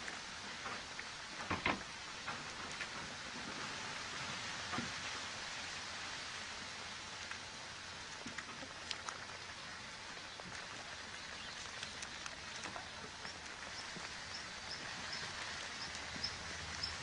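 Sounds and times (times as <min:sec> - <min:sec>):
steady outdoor hiss: 0:00.0 - 0:17.0
faint ticks: 0:10.4 - 0:17.0.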